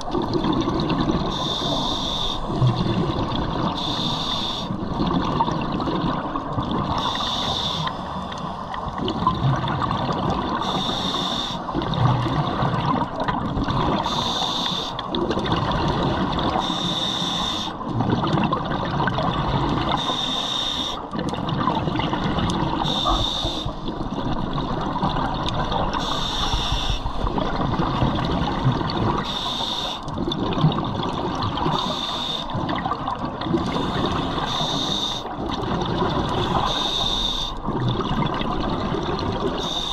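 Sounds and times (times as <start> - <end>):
exhaled air bubbling: 0.0 - 39.9
regulator inhale hiss: 1.3 - 2.5, 3.8 - 4.7, 7.0 - 8.8, 10.6 - 11.7, 14.0 - 15.0, 16.6 - 17.8, 20.0 - 21.0, 22.8 - 23.8, 26.0 - 27.3, 29.2 - 30.0, 31.7 - 32.6, 33.7 - 35.3, 36.5 - 37.6, 39.6 - 39.9.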